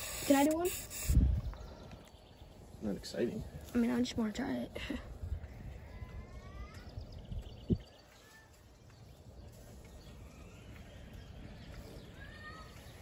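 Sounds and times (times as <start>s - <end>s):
low wind rumble: 0.7s - 8.2s
faint bird chirps: 5.2s - 13.0s.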